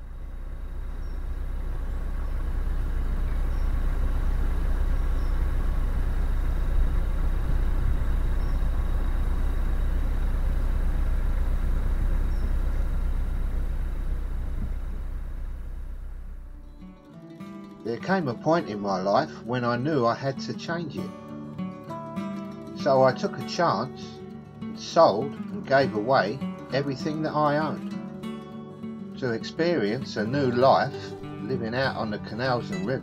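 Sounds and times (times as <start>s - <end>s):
boat engine rumbling: 0.0s - 16.9s.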